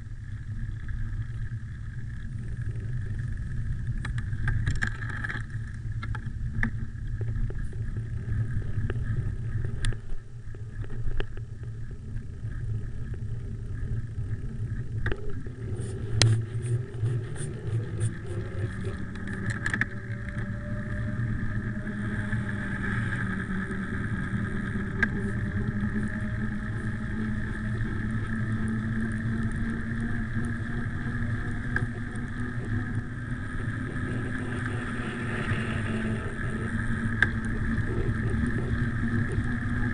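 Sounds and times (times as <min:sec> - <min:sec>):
hum rising in pitch: 0:00.0 - 0:39.9
wind rushing over microphone: 0:00.0 - 0:39.9
bicycle clicks and rattles: 0:00.7 - 0:11.9, 0:12.6 - 0:20.9.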